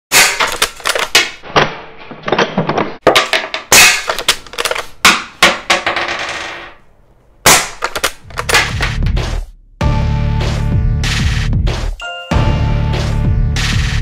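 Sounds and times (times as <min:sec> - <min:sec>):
rifle lever clacking: 0:07.7 - 0:08.8.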